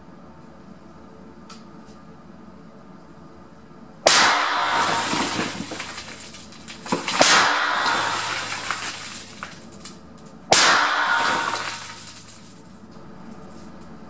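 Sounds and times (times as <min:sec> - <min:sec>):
shotgun shots echoing: 0:04.1 - 0:09.5, 0:10.5 - 0:12.4.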